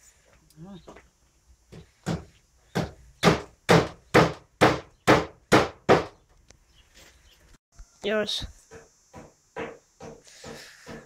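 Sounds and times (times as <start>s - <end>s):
hammer striking wood: 1.7s - 6.2s, 8.7s - 11.0s.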